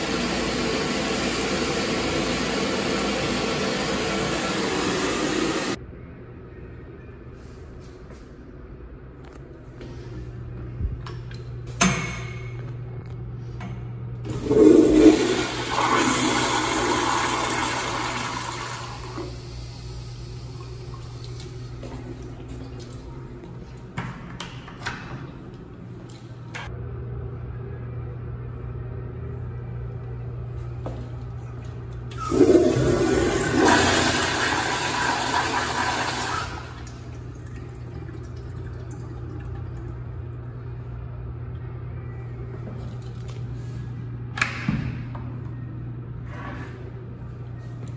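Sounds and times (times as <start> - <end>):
toilet flushing: 0.0 - 5.8, 14.2 - 23.0, 32.1 - 40.2
steady low hum: 5.6 - 15.7, 18.8 - 33.6, 36.7 - 47.9.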